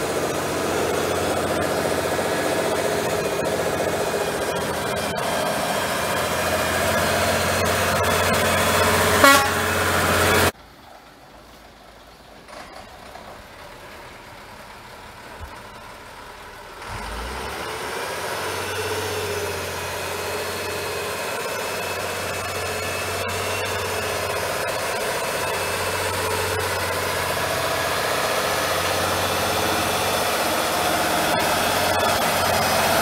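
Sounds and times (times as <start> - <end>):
truck diesel engine: 0.0 - 33.0
horn toot: 8.8 - 10.5.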